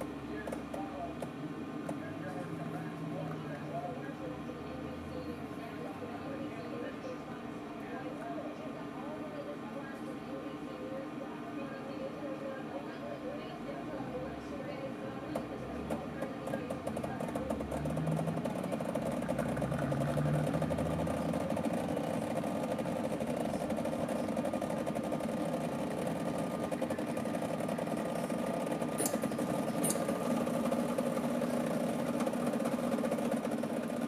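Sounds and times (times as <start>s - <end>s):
espresso machine pump buzzing: 15.0s - 34.0s.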